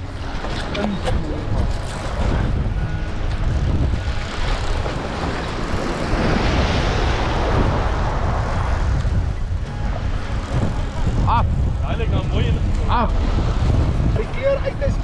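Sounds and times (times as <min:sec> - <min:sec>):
wind buffeting microphone: 0:00.0 - 0:15.0
wave breaking over rocks: 0:03.3 - 0:15.0.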